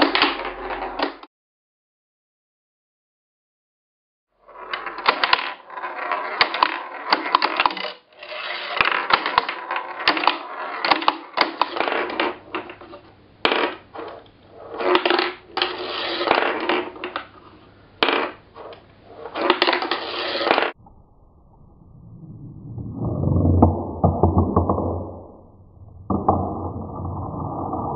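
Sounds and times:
steel ball rolling on track: 0:22.1 - 0:27.9.

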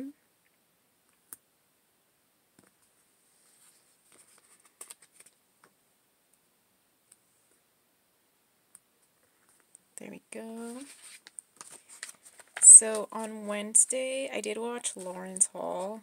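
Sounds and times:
paper stickers rustling: 0:03.4 - 0:05.4, 0:10.6 - 0:13.3.

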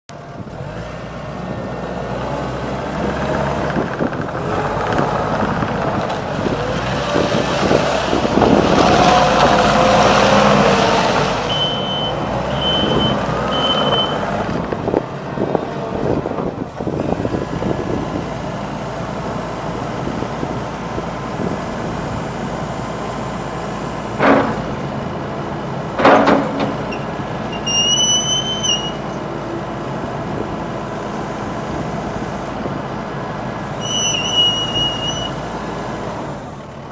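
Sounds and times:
diesel engine revving: 0:00.3 - 0:36.9
short beeps: 0:11.5 - 0:14.2
sharp clunks: 0:24.2 - 0:24.8, 0:26.0 - 0:27.1
brief high squeal: 0:26.9 - 0:29.1, 0:33.8 - 0:35.4.

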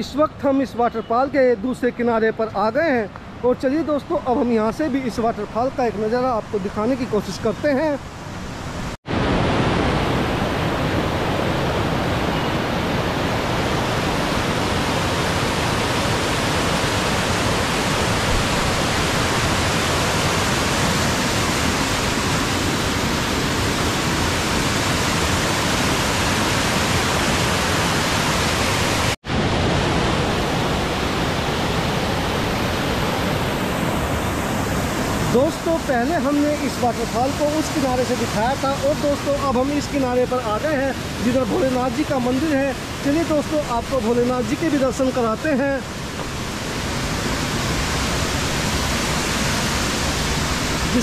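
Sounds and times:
waterfall rushing: 0:03.6 - 0:51.0.

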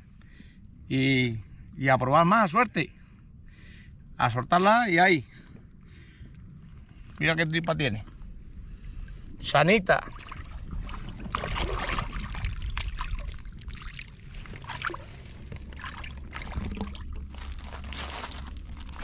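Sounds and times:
water sloshing and splashing: 0:05.4 - 0:19.0.

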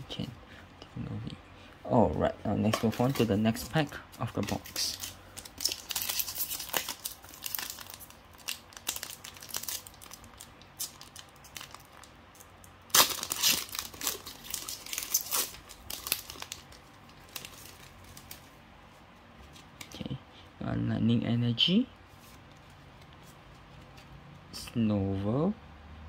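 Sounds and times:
wrapper crinkling and tearing: 0:02.7 - 0:18.5.

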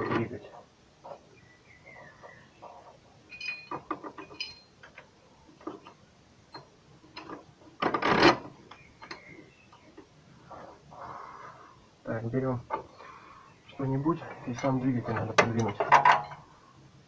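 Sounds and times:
short metal clinks: 0:03.3 - 0:05.0, 0:15.6 - 0:16.5.

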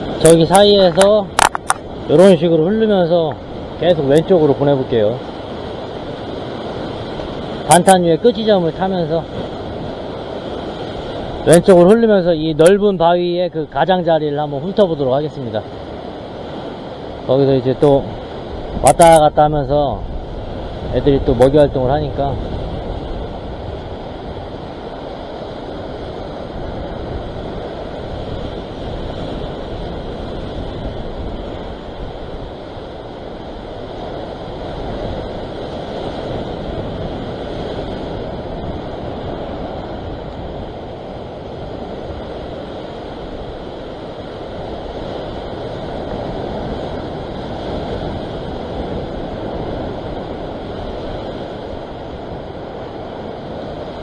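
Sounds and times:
surf washing against rocks: 0:00.0 - 0:54.0
wind on microphone: 0:00.0 - 0:54.0.

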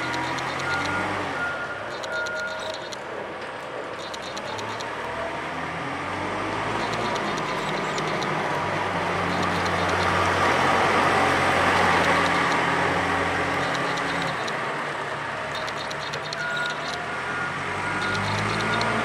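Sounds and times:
forklift diesel engine passing: 0:04.4 - 0:19.0.

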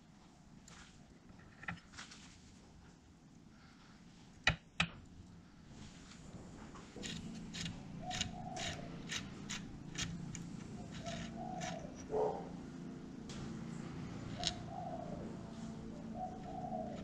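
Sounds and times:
steel tool clicking and scraping: 0:07.0 - 0:12.1
dove cooing: 0:07.5 - 0:12.6, 0:14.2 - 0:17.0.

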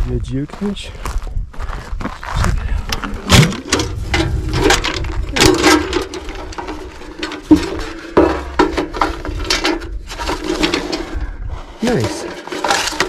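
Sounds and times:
metal can clanking and knocking: 0:03.0 - 0:11.2, 0:11.8 - 0:13.0.

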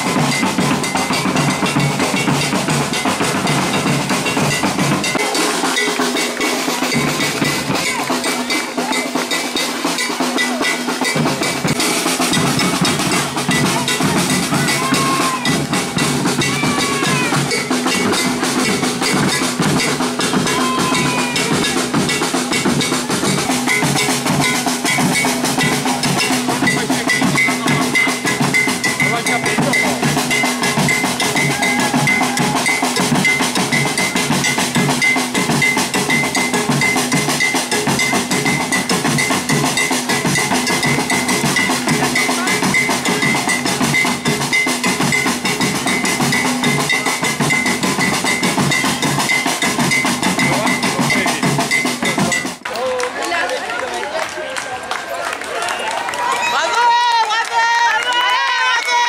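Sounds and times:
percussion band drumming: 0:00.0 - 0:53.5, 0:55.0 - 0:59.0.

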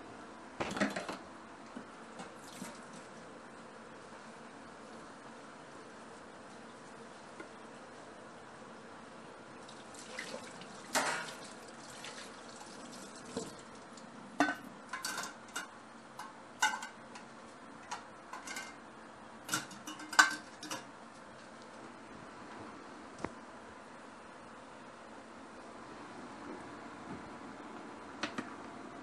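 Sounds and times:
dishes and utensils clattering: 0:14.4 - 0:17.3, 0:17.9 - 0:18.8, 0:19.5 - 0:20.9.

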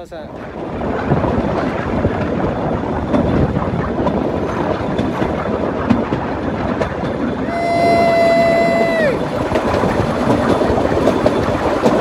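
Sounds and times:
train wheels rattling over track: 0:00.0 - 0:12.0.

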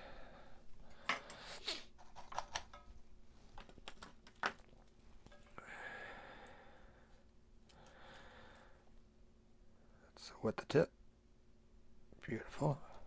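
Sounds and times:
small tools clicking and knocking: 0:03.6 - 0:05.6.

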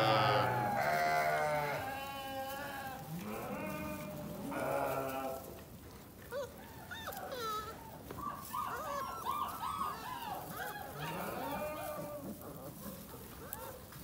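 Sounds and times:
goats bleating: 0:00.0 - 0:05.6, 0:10.9 - 0:12.4.

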